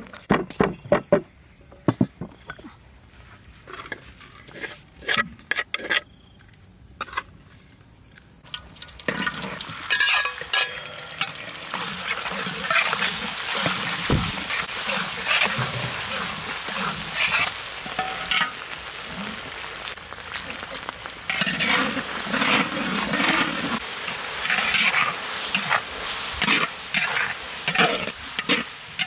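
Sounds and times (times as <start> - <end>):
shallots sizzling in hot oil: 8.4 - 29.0
metal spatula scraping a wok: 9.3 - 19.4, 21.2 - 29.0.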